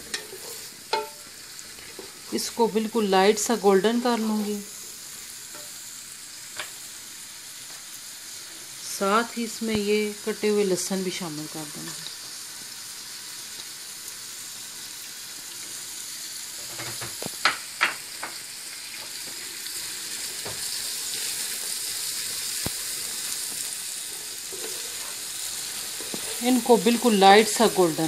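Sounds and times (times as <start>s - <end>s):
onions sizzling in hot oil: 0.0s - 28.0s
spatula scraping a pot: 24.5s - 25.2s.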